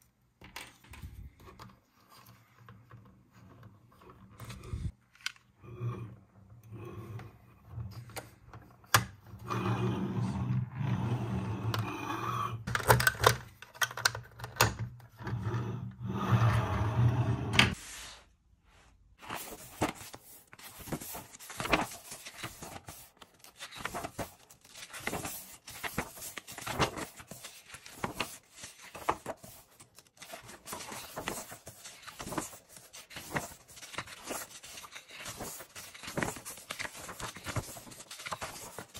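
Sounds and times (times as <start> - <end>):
paper rustling: 19.2 - 38.9.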